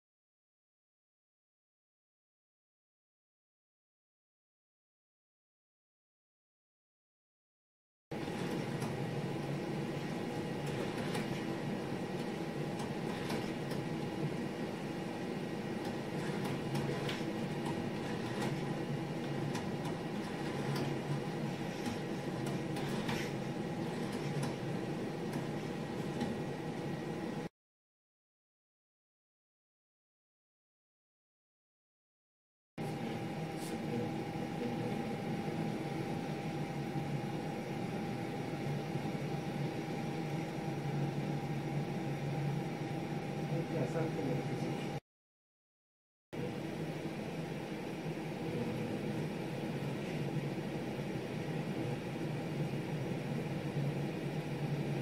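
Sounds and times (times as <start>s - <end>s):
machinery hum and hiss: 8.2s - 27.5s, 32.8s - 45.0s
thin constant whine: 8.2s - 27.5s, 32.8s - 45.0s, 46.4s - 55.0s.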